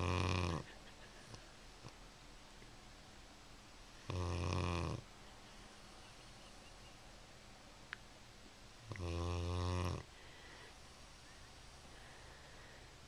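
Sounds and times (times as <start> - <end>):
dog snoring: 0.0 - 0.8, 4.0 - 5.1, 8.9 - 10.2.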